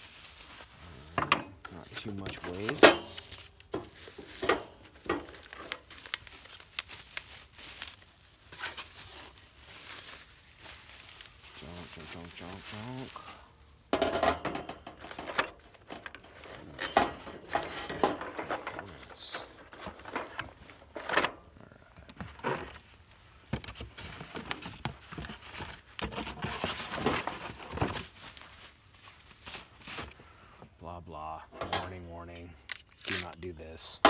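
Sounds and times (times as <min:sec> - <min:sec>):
cardboard and paper rustling: 0:00.0 - 0:13.7, 0:14.8 - 0:30.8
grill grate clunking and rattling: 0:13.9 - 0:18.8.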